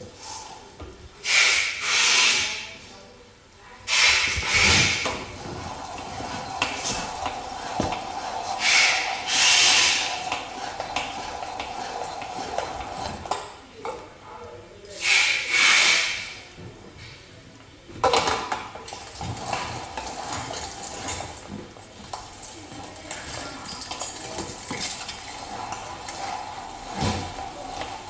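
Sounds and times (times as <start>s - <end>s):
hand-cranked meat grinder grinding: 4.5s - 13.5s.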